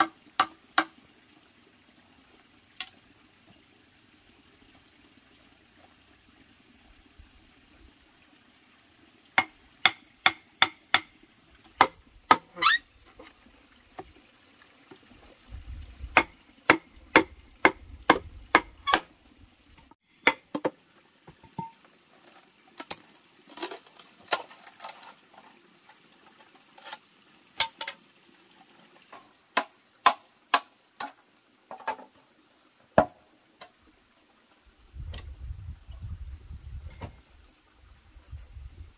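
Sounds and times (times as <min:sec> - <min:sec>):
machete chopping bamboo: 0:00.0 - 0:01.0, 0:09.4 - 0:11.1, 0:11.8 - 0:12.6, 0:16.2 - 0:19.1, 0:20.2 - 0:20.7, 0:29.6 - 0:31.1
high insect buzz: 0:09.3 - 0:13.3.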